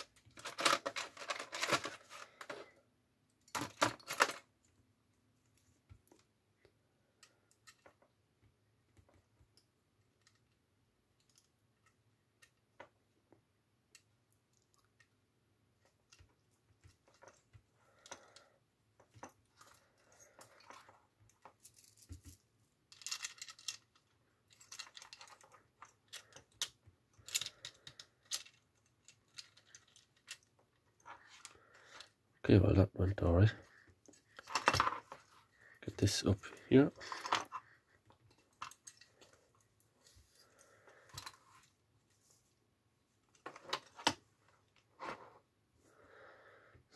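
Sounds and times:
small plastic clicks and rattles: 0:08.9 - 0:12.9, 0:15.8 - 0:32.2.

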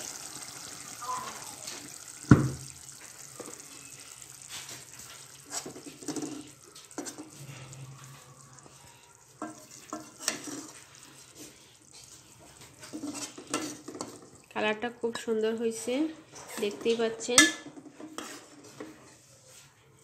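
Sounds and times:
spoon knocking on pot: 0:17.4 - 0:17.8.

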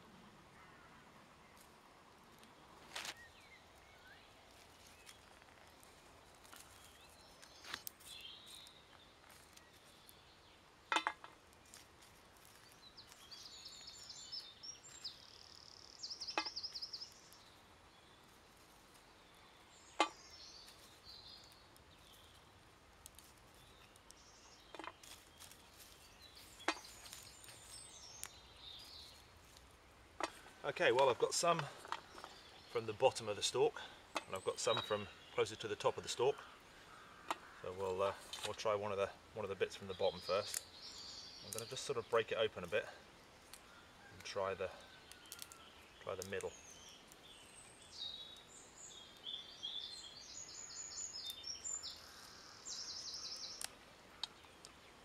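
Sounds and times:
small bird chirping: 0:03.1 - 0:10.6, 0:12.4 - 0:29.6, 0:44.8 - 0:55.0
sticks clicking in embers: 0:04.4 - 0:10.2, 0:10.9 - 0:13.3, 0:20.0 - 0:32.8, 0:37.2 - 0:38.7, 0:40.2 - 0:40.8, 0:41.4 - 0:42.8, 0:43.4 - 0:47.4, 0:51.2 - 0:52.3, 0:53.4 - 0:54.8.

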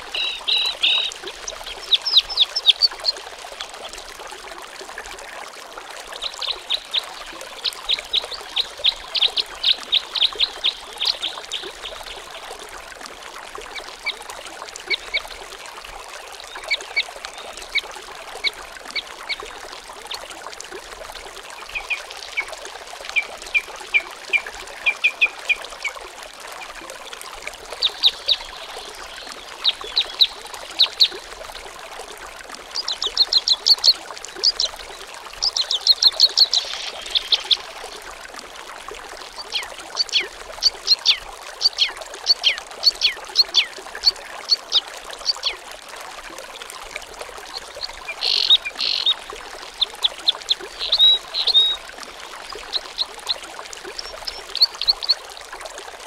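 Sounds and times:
birds chirping: 0:47.8 - 0:49.2, 0:49.8 - 0:55.2.

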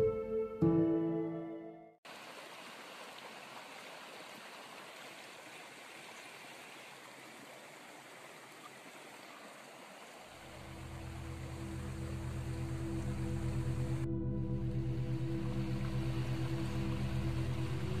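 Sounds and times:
soft low music: 0:00.0 - 0:01.9, 0:10.5 - 0:18.0
stream flowing: 0:02.0 - 0:18.0.

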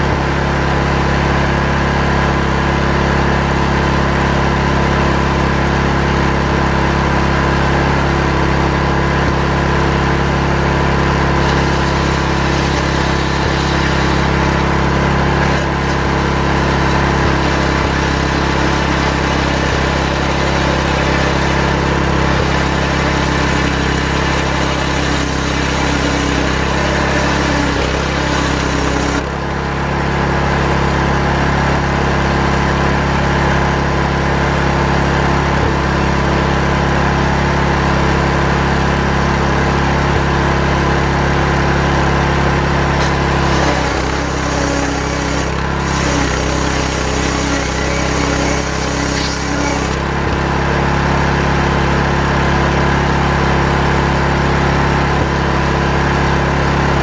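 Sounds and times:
chainsaw ripping a log: 0:08.4 - 0:29.5, 0:42.4 - 0:53.5.

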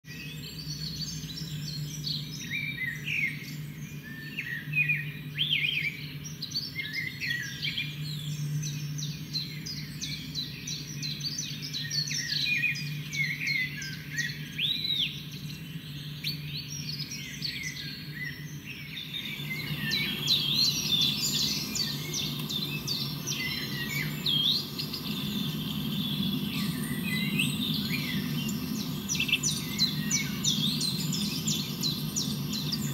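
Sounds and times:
birds chirping and calling: 0:11.8 - 0:32.9
steady low hum: 0:18.0 - 0:32.9.

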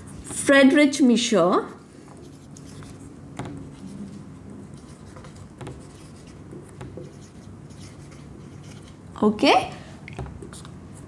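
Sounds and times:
marker writing on whiteboard: 0:01.7 - 0:09.0.

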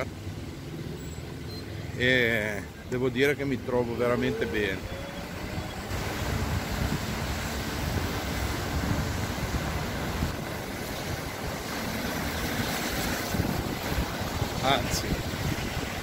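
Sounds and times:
road and tyre rumble: 0:00.0 - 0:16.0
wind buffeting microphone: 0:03.6 - 0:16.0.

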